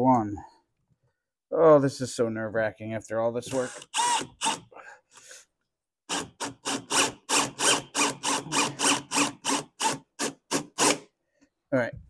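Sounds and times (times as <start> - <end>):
cordless drill driving a screw: 3.5 - 4.7, 6.1 - 11.0.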